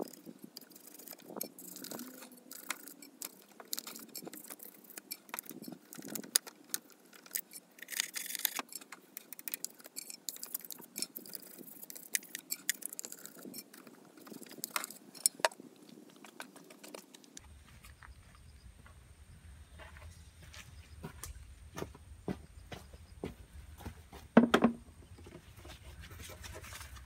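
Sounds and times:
hand tool clicking on metal: 0:00.0 - 0:15.5.

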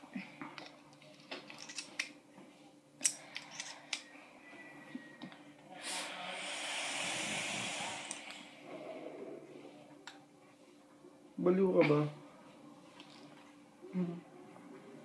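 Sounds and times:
hiss of air drawn through vape: 0:05.8 - 0:08.6.

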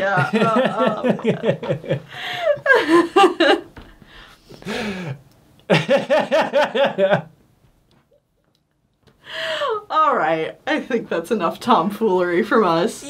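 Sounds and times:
people laughing: 0:00.0 - 0:03.7, 0:05.7 - 0:07.3
breathy exhale: 0:04.0 - 0:05.2.

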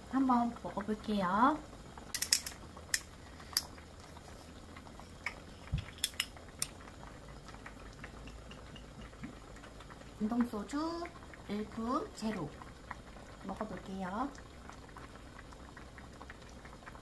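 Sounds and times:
liquid trickling into glass: 0:05.3 - 0:09.5.

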